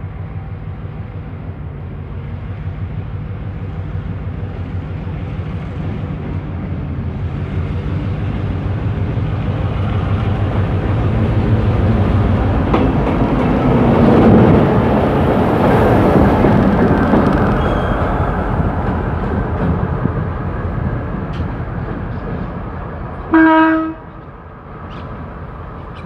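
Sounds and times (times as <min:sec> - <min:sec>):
diesel locomotive engine humming: 0:00.0 - 0:26.0.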